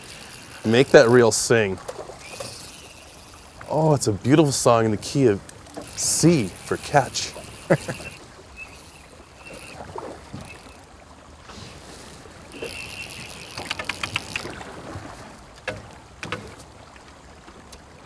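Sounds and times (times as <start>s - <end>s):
reel quick clicks: 0.0s - 3.7s, 5.4s - 10.9s, 11.8s - 14.6s
fly reel drag buzzing: 0.0s - 16.6s.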